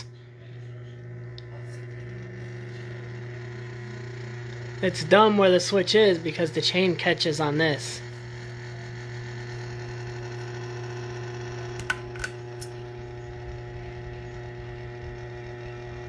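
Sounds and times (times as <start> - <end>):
ceiling fan motor hum: 0.0 - 16.0.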